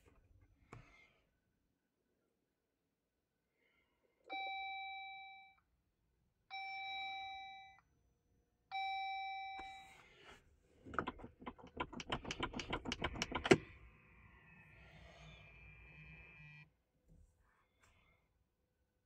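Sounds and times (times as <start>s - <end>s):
rapid sharp clicks: 10.9s - 13.7s.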